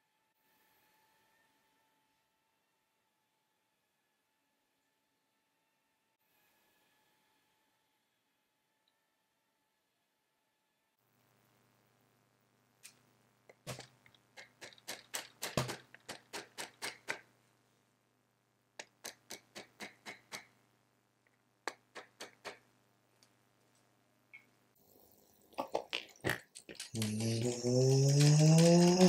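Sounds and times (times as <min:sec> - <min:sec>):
faint low hum: 0:07.1 - 0:14.6.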